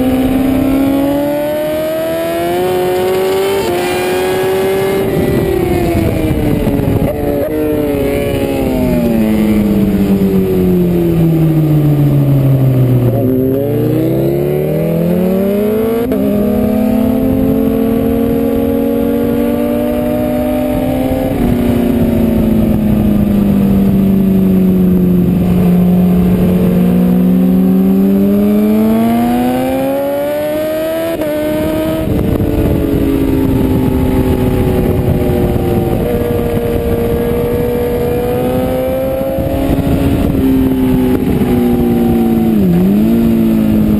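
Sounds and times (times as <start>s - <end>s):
motorcycle engine under load: 0.0s - 43.9s
wind rush: 0.0s - 43.9s.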